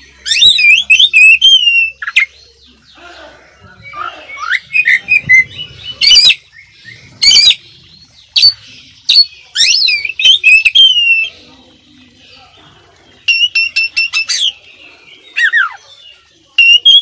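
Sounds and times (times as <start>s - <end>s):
bird singing varied whistles: 0.2s - 2.3s, 13.3s - 14.6s, 16.6s - 17.0s.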